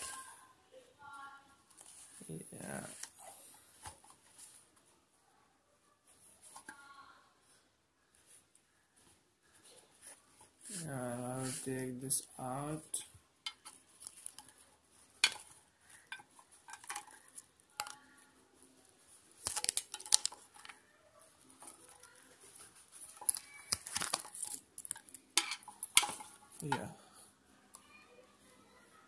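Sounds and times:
paper and cardboard rustling: 13.6s - 26.9s.

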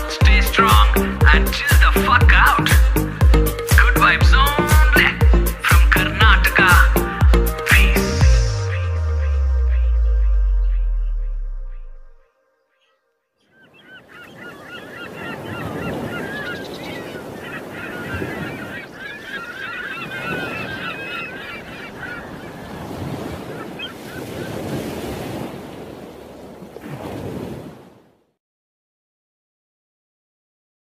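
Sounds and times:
geese honking: 6.0s - 12.2s, 12.8s - 24.6s.

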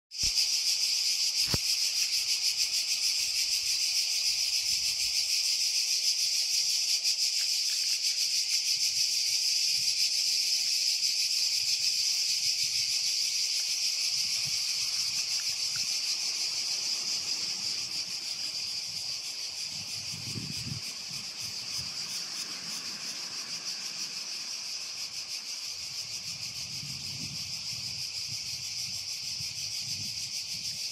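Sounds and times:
cicadas buzzing: 0.1s - 30.9s.

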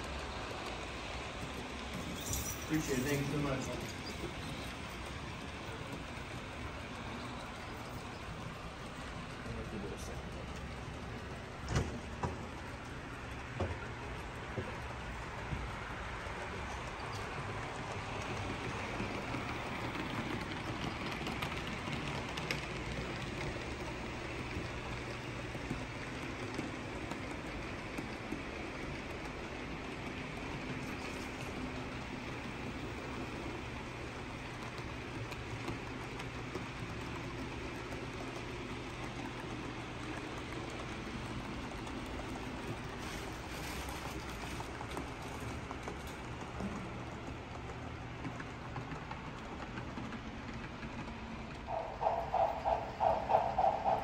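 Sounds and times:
model trains rolling on track: 0.0s - 54.0s.

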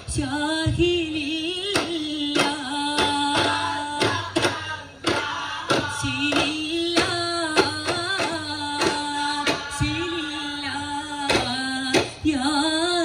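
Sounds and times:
voices singing together: 0.0s - 13.0s
frame drum beats: 1.7s - 10.4s, 11.3s - 12.2s.

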